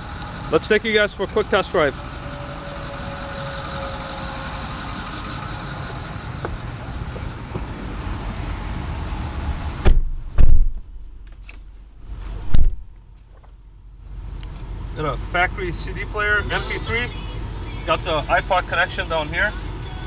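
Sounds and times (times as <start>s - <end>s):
diesel engine idling: 0.0s - 20.0s
car door slamming shut: 9.8s - 11.0s, 12.4s - 13.0s.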